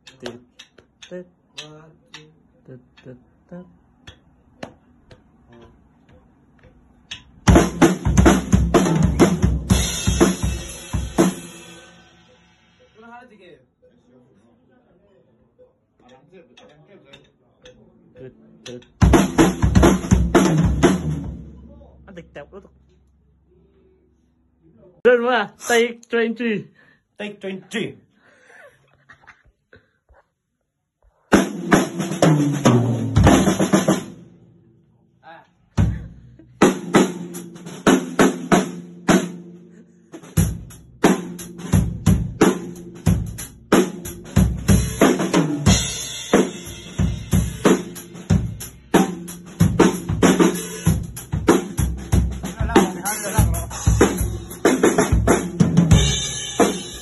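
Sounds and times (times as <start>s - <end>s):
drum kit playing loud: 7.4s - 13.0s, 18.7s - 21.9s, 31.3s - 34.5s, 35.8s - 57.0s
cymbals ringing: 9.7s - 13.0s.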